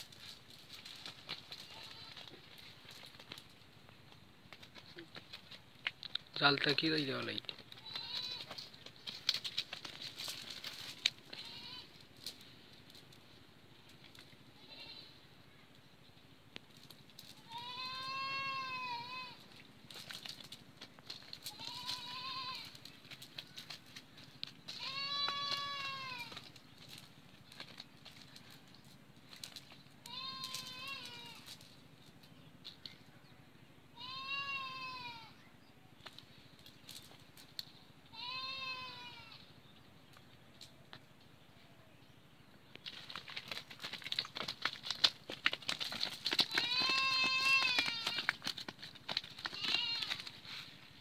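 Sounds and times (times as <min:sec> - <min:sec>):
light clicks and rustles: 0:07.2 - 0:13.2, 0:42.7 - 0:50.9.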